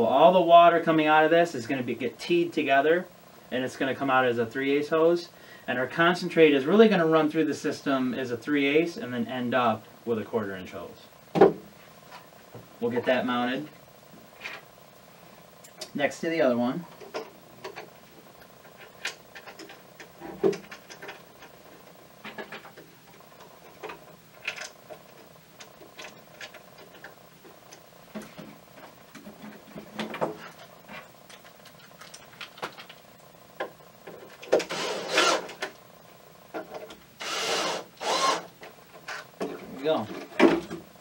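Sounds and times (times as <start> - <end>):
cordless drill driving screw: 34.6 - 35.6, 37.2 - 38.5.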